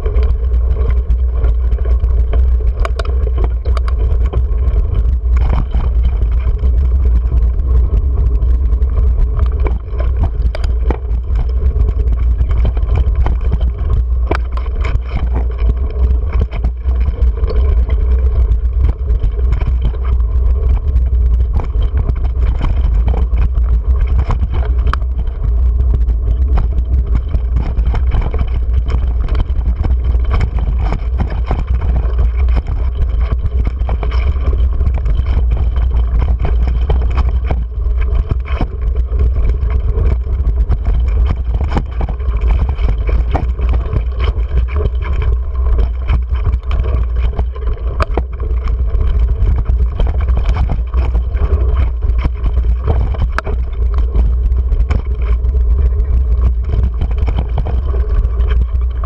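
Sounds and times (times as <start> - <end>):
wind rumble on camera: 0.0 - 59.0
bike clattering over rocks: 26.3 - 54.2.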